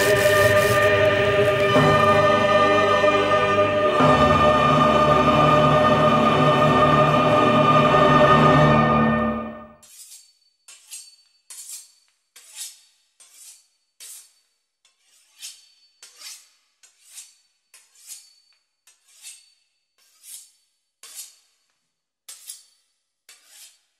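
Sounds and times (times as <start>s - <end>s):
knife sawing through crisp pastry: 10.9s - 18.3s, 18.9s - 21.6s, 23.3s - 23.9s.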